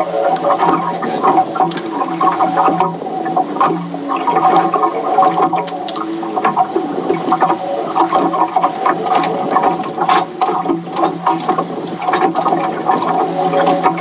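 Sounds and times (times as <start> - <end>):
steady mechanical hum: 0.0 - 14.0
water slapping against boat hull: 0.0 - 14.0.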